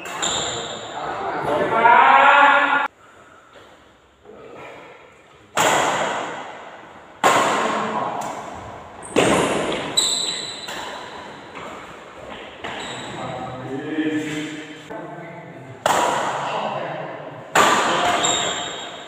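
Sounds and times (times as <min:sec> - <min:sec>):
rackets hitting shuttlecock: 0:05.5 - 0:08.5, 0:09.1 - 0:12.8, 0:17.5 - 0:19.0.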